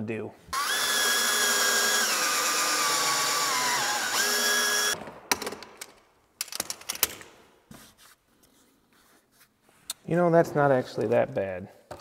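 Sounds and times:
drill motor whine: 0:00.6 - 0:05.0.

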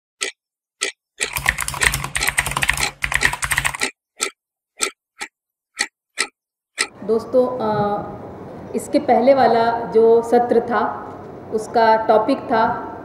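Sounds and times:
keyboard typing: 0:00.2 - 0:06.9.

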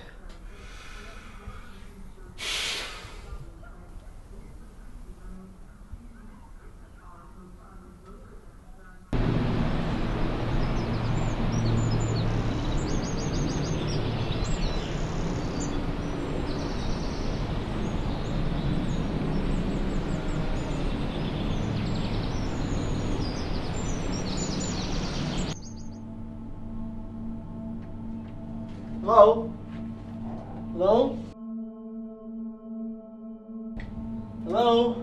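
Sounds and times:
small birds chirping: 0:00.0 - 0:26.1.

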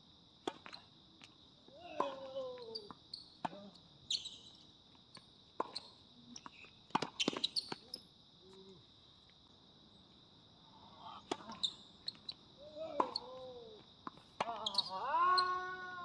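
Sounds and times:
tennis ball hit by rackets: 0:12.9 - 0:13.3
high-pitched insect drone: 0:14.5 - 0:16.0.

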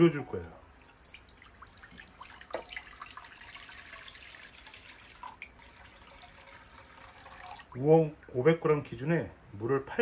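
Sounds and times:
water pouring and splashing into pan: 0:00.6 - 0:07.8.

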